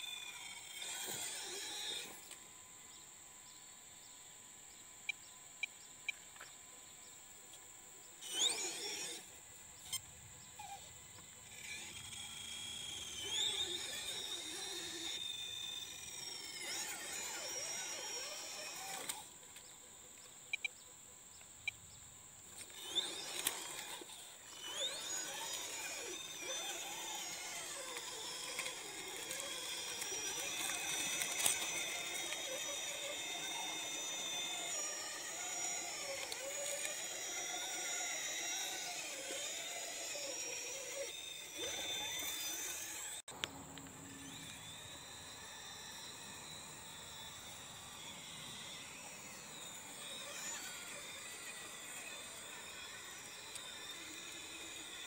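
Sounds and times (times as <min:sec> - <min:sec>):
rc car motor whining: 0:00.0 - 0:55.0
sharp clicks: 0:22.6 - 0:39.8.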